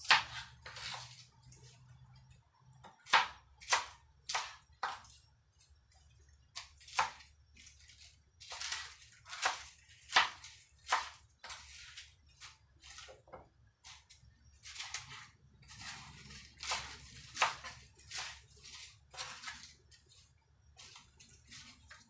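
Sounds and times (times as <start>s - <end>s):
knife cutting leaves on cutting board: 0.0s - 1.8s, 6.6s - 22.0s.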